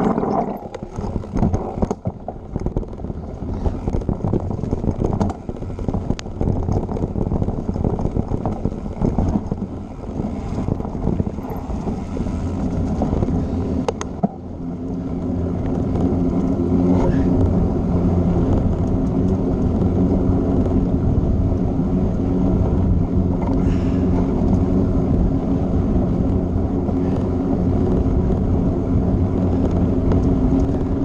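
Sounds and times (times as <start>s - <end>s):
bike and mount rattling: 0.0s - 22.8s
tyres rumbling on dirt trail: 0.0s - 31.0s
wind buffeting microphone: 0.0s - 31.0s.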